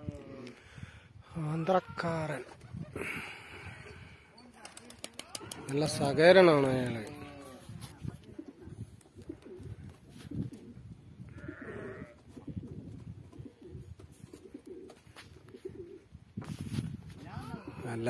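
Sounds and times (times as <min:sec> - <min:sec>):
wind buffeting microphone: 0:02.6 - 0:04.2, 0:07.1 - 0:14.3, 0:15.4 - 0:17.9
pigeons cooing: 0:08.2 - 0:16.2.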